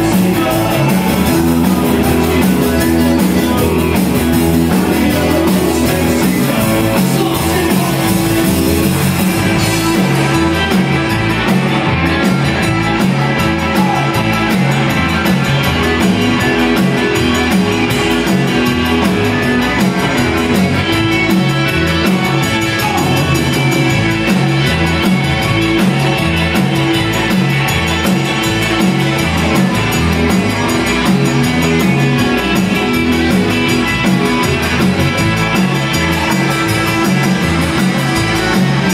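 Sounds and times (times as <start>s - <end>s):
person singing: 0.0s - 11.4s
live band playing: 0.0s - 38.9s.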